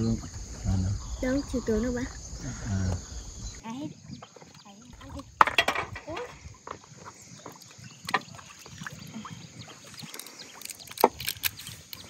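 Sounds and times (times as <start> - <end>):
river water: 0.0 - 12.0.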